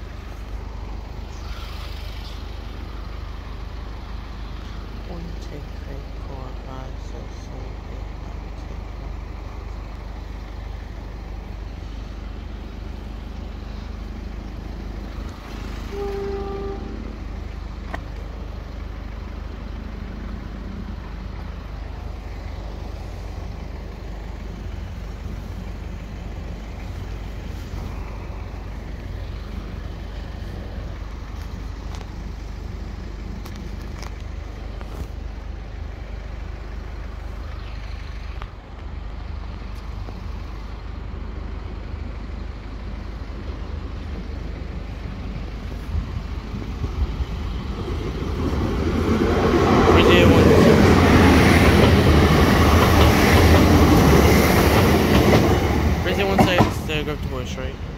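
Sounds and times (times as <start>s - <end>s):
low rumble of road traffic: 0.0s - 57.9s
short horn note: 15.9s - 17.1s.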